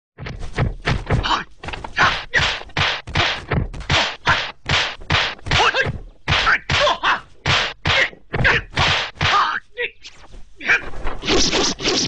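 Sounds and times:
punch and block whacks: 0.2 - 1.4, 2.0 - 9.5
fighters yelling: 5.5 - 9.7.

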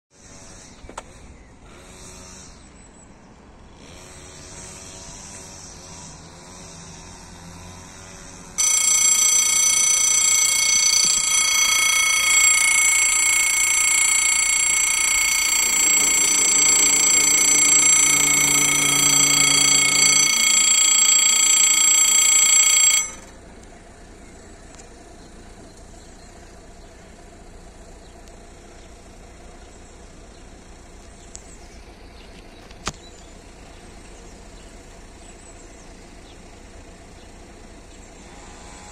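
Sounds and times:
barrier motor humming: 3.6 - 38.9
electric bell ringing: 8.5 - 23.4.

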